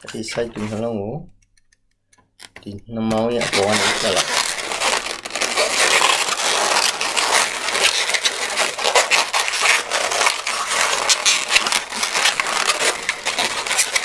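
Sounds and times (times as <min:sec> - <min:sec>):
balloon rubber creaking: 0:00.0 - 0:01.1, 0:02.4 - 0:14.0.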